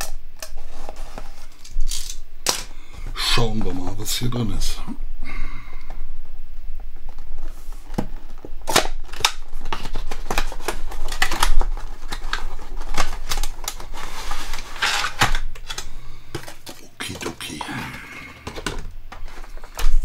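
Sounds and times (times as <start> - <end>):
cardboard packaging rustling: 0.4 - 2.2, 7.0 - 20.0
scraping rustle: 13.8 - 15.2.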